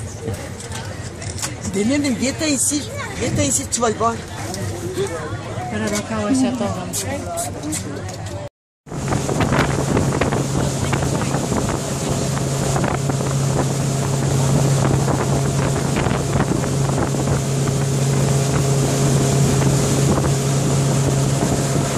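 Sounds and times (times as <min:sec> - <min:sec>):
boat motor droning: 0:08.9 - 0:21.9
wind buffeting microphone: 0:08.9 - 0:21.9.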